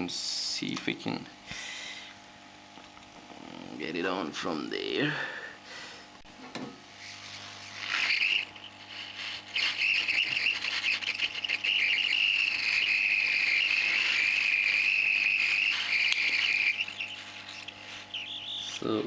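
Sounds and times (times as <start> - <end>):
hot air gun hissing: 7.0 - 19.0.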